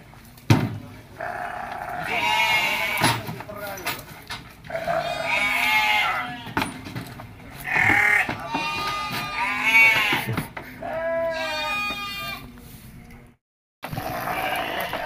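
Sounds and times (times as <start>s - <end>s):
sheep bleating: 1.2s - 3.0s, 4.7s - 6.6s, 7.6s - 12.4s, 13.9s - 15.0s.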